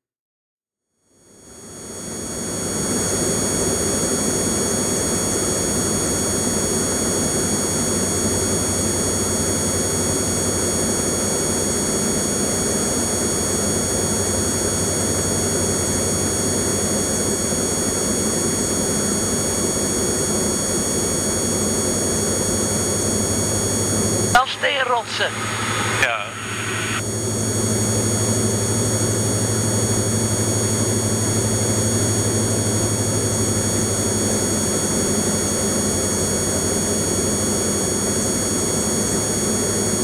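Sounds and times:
aircraft engine droning: 0:21.6 - 0:34.6
high-pitched whine: 0:22.4 - 0:34.0.

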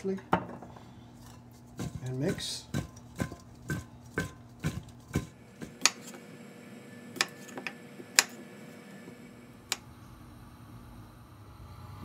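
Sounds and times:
knife chopping on wooden board: 0:01.8 - 0:06.2.

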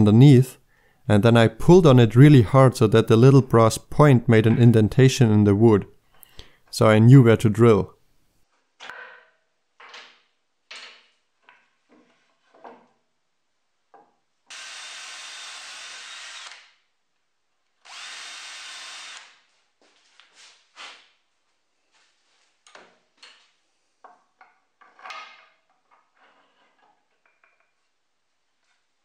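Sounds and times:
cordless drill boring wood: 0:14.5 - 0:16.7, 0:17.8 - 0:19.4.

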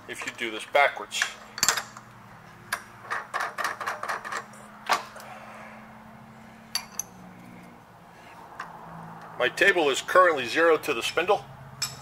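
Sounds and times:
metal clicks and clinks: 0:01.2 - 0:02.0, 0:06.7 - 0:07.2.

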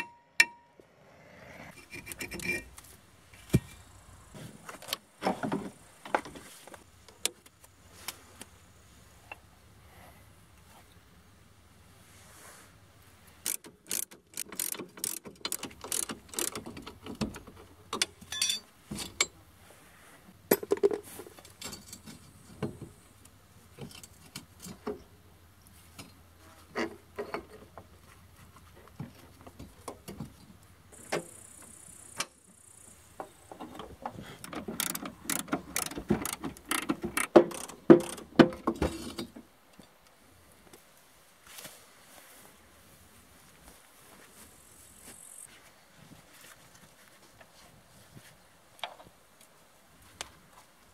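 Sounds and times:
ratchet and wrench clicks: 0:13.4 - 0:16.9, 0:34.8 - 0:38.3
metal parts clinking and knocking: 0:13.4 - 0:19.4, 0:34.4 - 0:39.2.

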